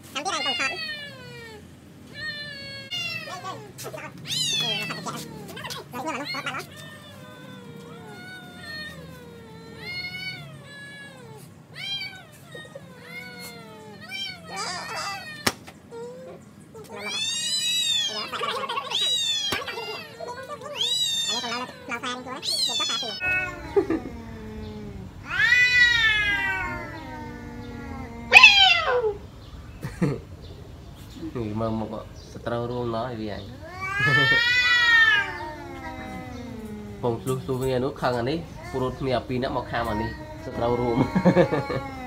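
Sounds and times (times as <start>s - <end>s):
cats yowling: 0.0s - 29.6s, 31.7s - 42.0s
low steady moan: 1.2s - 17.0s, 21.4s - 29.9s, 33.6s - 42.0s.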